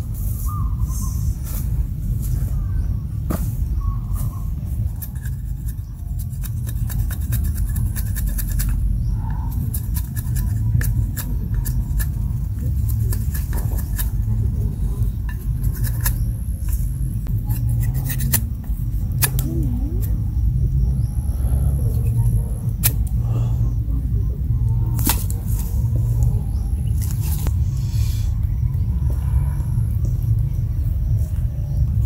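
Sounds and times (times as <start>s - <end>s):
low rumble: 0.0s - 32.0s
knife scraping a stick: 4.2s - 20.2s, 25.0s - 26.3s.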